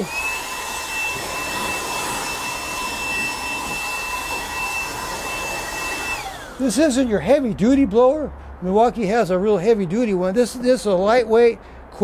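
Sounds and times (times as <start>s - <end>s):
blower air rush with motor whine: 0.0s - 9.2s.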